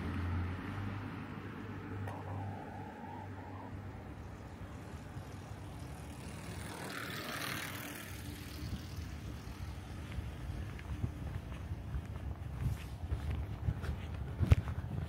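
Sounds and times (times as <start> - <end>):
car passing: 0.0 - 11.9.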